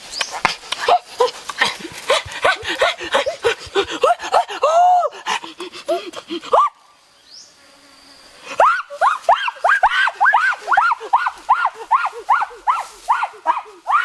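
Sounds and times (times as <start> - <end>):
lip-smacking and chewing clicks: 0.2 - 2.5
panting: 0.4 - 6.6.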